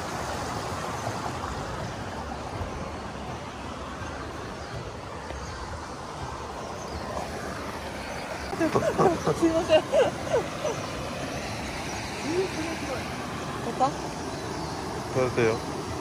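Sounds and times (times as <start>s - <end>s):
river running over rocks: 0.0s - 16.0s.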